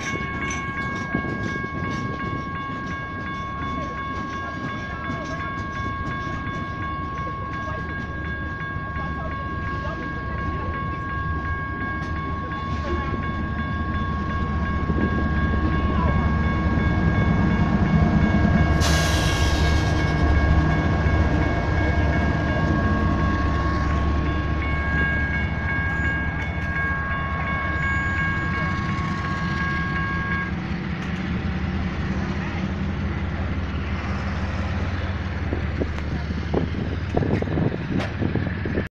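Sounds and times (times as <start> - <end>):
electronic crossing bells ringing: 0.0 - 35.8
diesel locomotive rumble: 0.0 - 38.9
freight train rolling past: 0.0 - 38.9.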